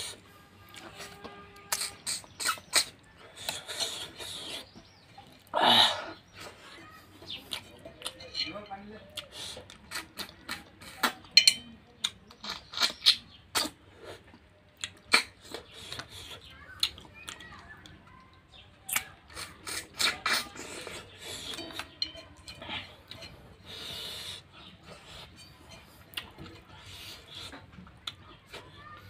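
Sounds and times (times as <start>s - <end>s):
mouth chewing food: 0.0s - 29.0s
mouth clicks: 1.6s - 6.1s, 9.2s - 18.3s.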